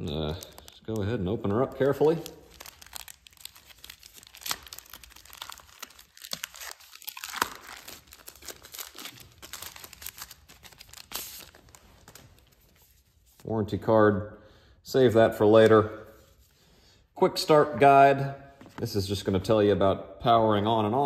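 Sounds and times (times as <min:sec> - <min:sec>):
plastic bag crinkling and tearing: 0:00.0 - 0:12.7.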